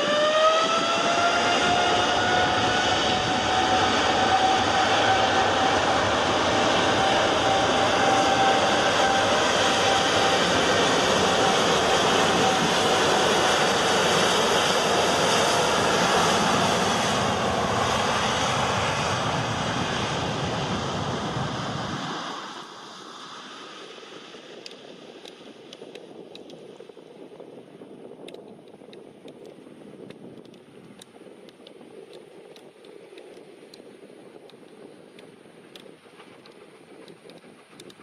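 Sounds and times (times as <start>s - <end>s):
jet engines roaring: 0.0s - 27.0s.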